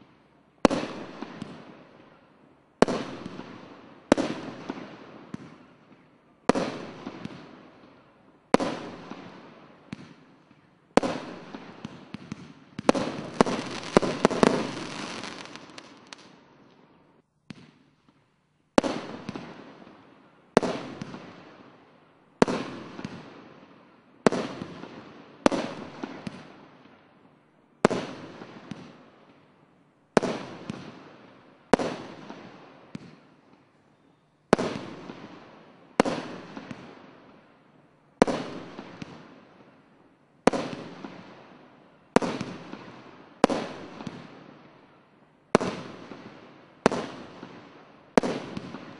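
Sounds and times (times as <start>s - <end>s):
fireworks banging: 12.8s - 16.4s.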